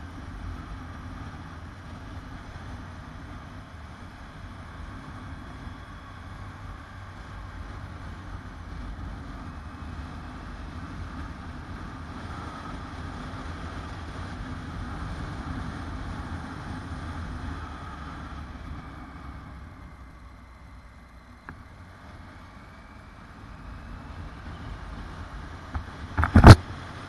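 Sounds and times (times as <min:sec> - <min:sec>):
motorcycle engine rumble: 0:00.0 - 0:27.0
wind rushing over microphone: 0:23.4 - 0:27.0.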